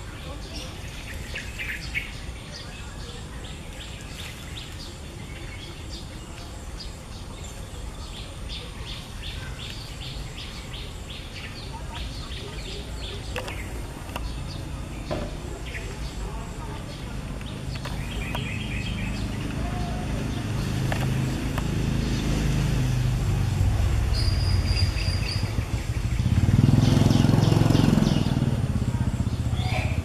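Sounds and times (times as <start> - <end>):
small birds chirping: 0.0 - 30.0.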